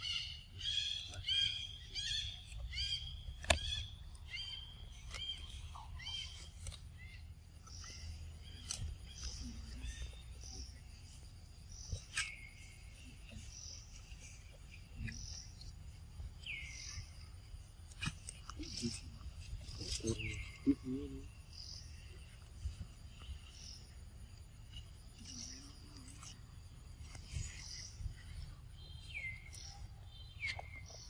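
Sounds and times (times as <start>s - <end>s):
sharp clicks: 3.4s - 3.8s.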